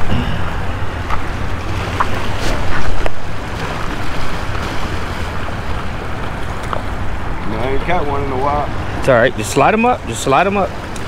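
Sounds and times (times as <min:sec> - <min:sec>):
waves washing against rocks: 0:00.0 - 0:07.7
wind rumbling on microphone: 0:00.0 - 0:11.0.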